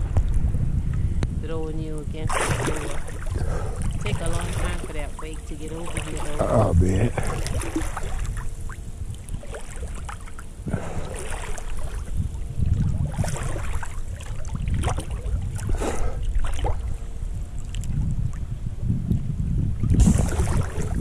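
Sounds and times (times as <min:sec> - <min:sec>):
low rumble: 0:00.0 - 0:21.0
water splashing against camera: 0:02.2 - 0:17.0, 0:19.8 - 0:21.0.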